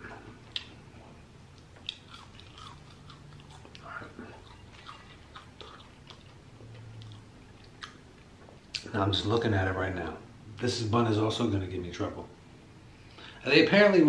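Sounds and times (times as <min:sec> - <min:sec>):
chewing crispy fries: 0:01.5 - 0:08.9.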